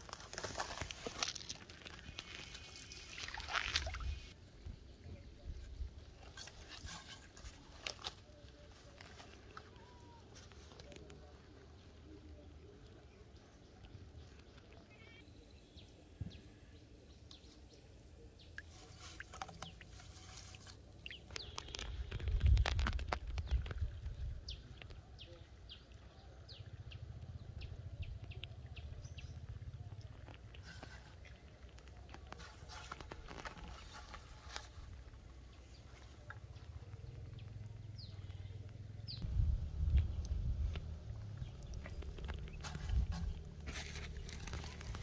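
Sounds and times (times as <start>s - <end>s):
string rustling on plastic bottles: 0.0s - 4.4s, 18.6s - 24.2s, 30.2s - 36.6s, 40.0s - 45.0s
birds chirping: 0.0s - 45.0s
low rumble: 36.6s - 45.0s.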